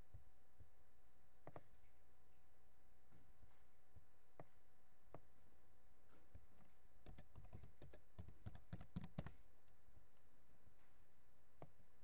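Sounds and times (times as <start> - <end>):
keyboard key clicks: 7.0 - 9.4.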